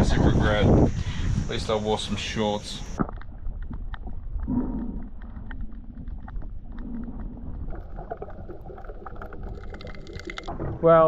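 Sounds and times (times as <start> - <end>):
underwater rumble: 0.0 - 11.0
faint underwater clicks: 2.8 - 10.6.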